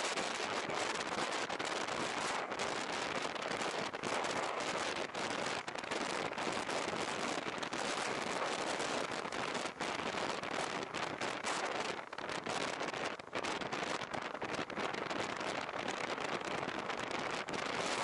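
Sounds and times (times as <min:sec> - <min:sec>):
wind and rain on microphone: 0:00.0 - 0:18.0.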